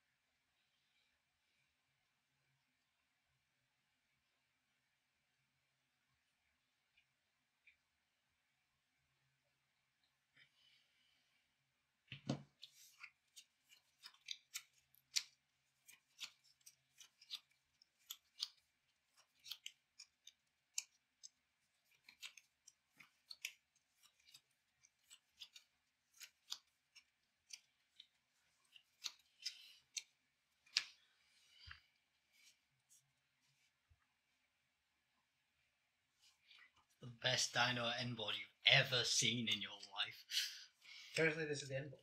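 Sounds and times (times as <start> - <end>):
cards clicking and snapping: 12.2 - 31.0.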